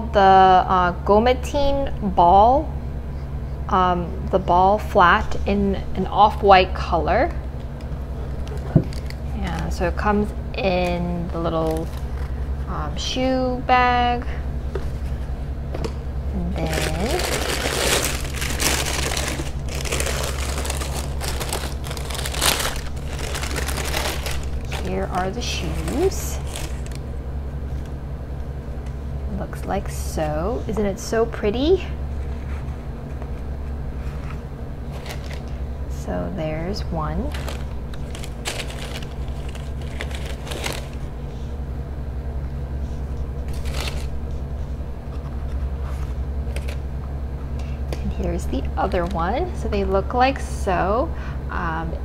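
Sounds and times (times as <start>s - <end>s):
steady low hum: 0.0s - 52.0s
tissue paper rustling: 16.6s - 27.0s, 37.2s - 41.1s.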